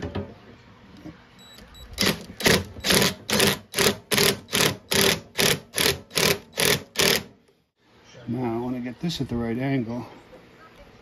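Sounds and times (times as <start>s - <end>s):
impact driver bursts: 2.0s - 7.3s.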